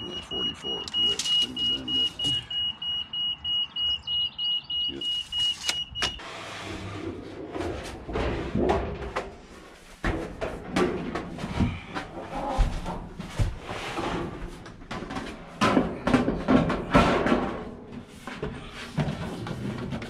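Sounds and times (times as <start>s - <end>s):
high electronic beeper pulsing: 0.0s - 6.2s
metal sheet flexing and scraping: 6.2s - 12.3s.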